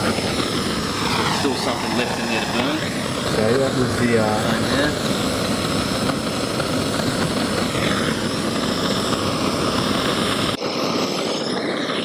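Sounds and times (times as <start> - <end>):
gas torch hissing: 0.0 - 12.0.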